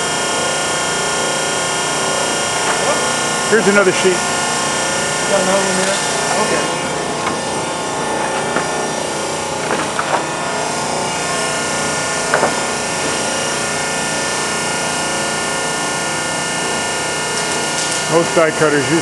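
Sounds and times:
hydraulic press motor hum: 0.0s - 19.0s.

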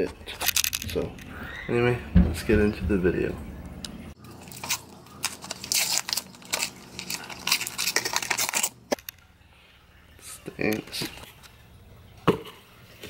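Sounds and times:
paper wrapper tearing and crumpling: 4.2s - 9.1s.

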